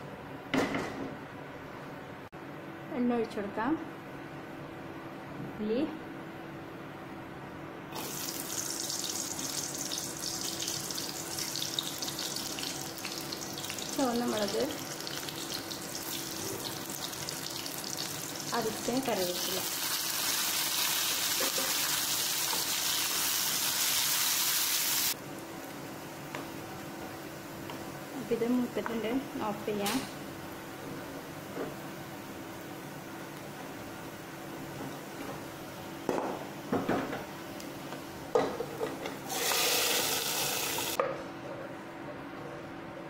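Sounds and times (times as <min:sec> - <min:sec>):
spices sizzling in hot oil: 0:08.0 - 0:25.8, 0:39.3 - 0:41.0.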